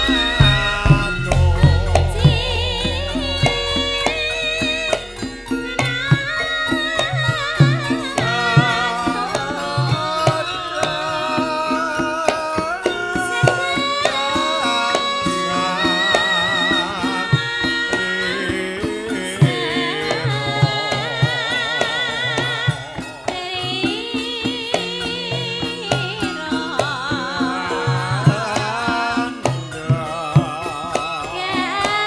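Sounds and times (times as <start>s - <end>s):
hand drum strokes: 0.0s - 21.5s
woman singing with vibrato: 0.0s - 32.0s.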